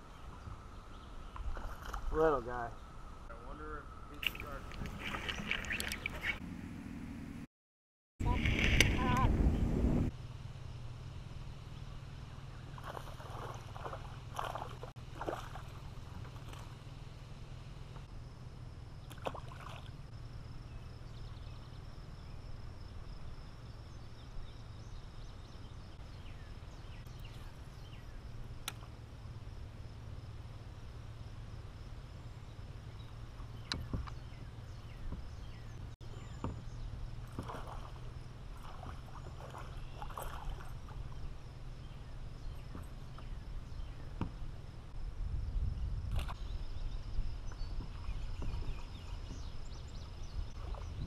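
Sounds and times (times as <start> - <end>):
steady low rumble: 8.2 - 19.1, 20.0 - 51.0
fish splashing in water: 12.8 - 16.8, 19.1 - 20.0, 37.3 - 41.2.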